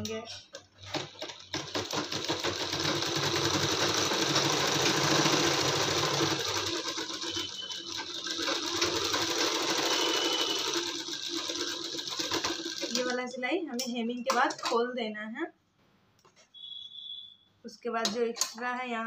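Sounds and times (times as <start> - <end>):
sewing machine running: 0.8 - 13.2.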